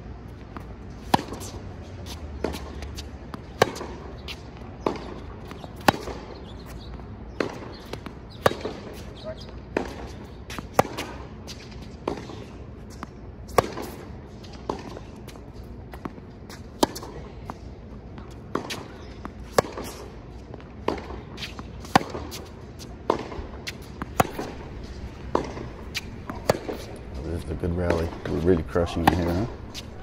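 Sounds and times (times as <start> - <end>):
tennis ball bouncing: 0.3 - 30.0
tennis ball hit by racket: 0.6 - 15.0, 16.0 - 17.2, 18.2 - 20.1, 20.8 - 30.0.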